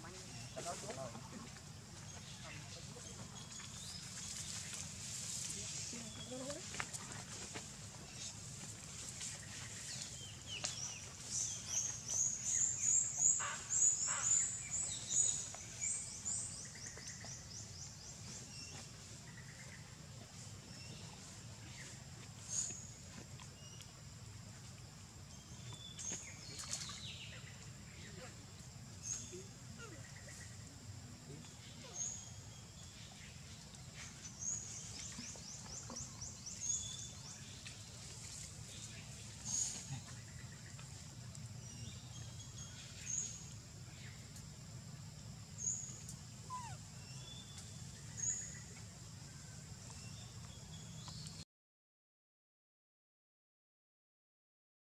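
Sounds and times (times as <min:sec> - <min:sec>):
birds chirping: 0:45.6 - 0:48.8.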